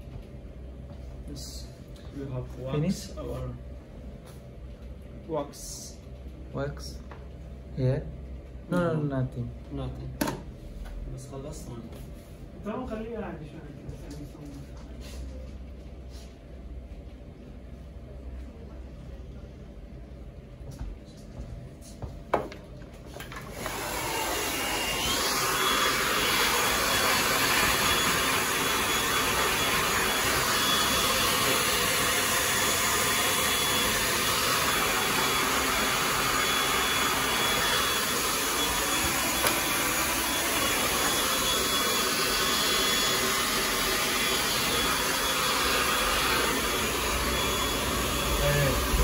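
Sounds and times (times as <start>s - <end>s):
hair dryer blowing: 23.1s - 49.0s.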